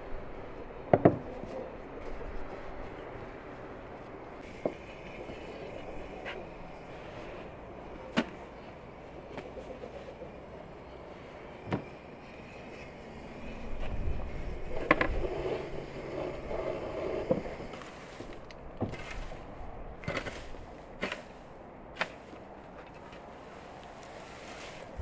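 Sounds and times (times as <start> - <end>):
garden tool scraping through dry grass: 17.7 - 22.4, 23.4 - 25.0
rustling: 17.7 - 25.0.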